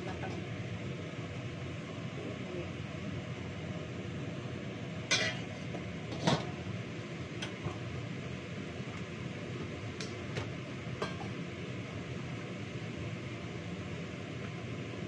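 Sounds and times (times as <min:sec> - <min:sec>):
fan hum: 0:00.0 - 0:15.0
dishes and utensils clinking: 0:05.1 - 0:05.6.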